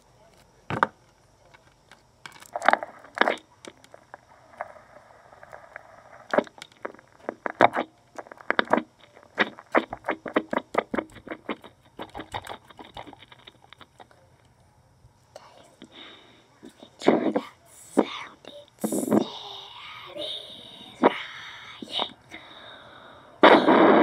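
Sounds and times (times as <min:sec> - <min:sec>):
plastic toy clicking and knocking: 0:09.8 - 0:14.1.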